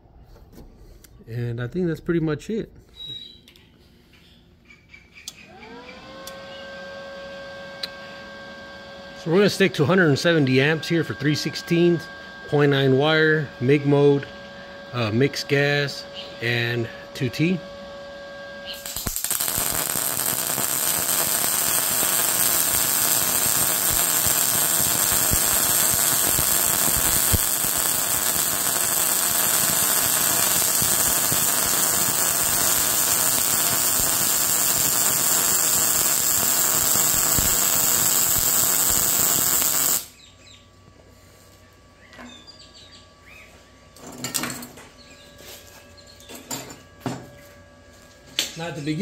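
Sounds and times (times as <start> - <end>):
welding arc crackling: 18.6 - 40.1
welding arc popping: 18.6 - 40.2.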